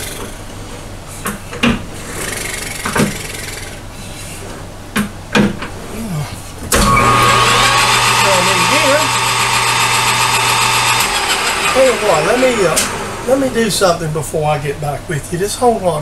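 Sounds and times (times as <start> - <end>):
lathe motor humming: 6.7 - 14.6.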